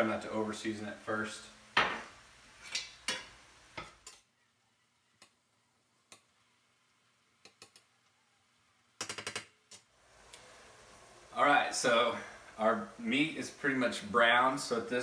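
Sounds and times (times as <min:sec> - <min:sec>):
utensil tapping and scraping skillet: 0:02.0 - 0:04.2.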